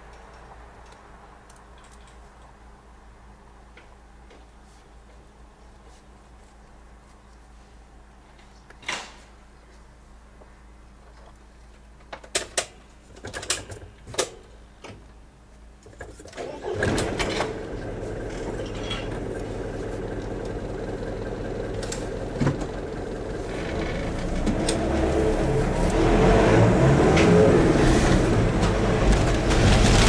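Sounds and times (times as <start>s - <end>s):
gates clanking and latching: 16.3s - 19.4s
car engine starting and running: 16.3s - 30.0s.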